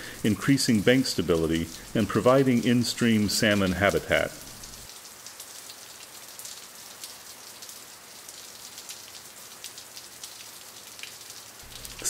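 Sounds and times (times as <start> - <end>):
water hissing with crackle: 0.0 - 7.4, 8.6 - 12.0.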